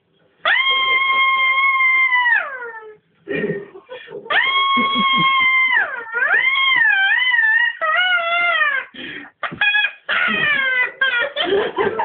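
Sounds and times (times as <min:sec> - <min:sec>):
person screaming and wailing: 0:04.3 - 0:08.9.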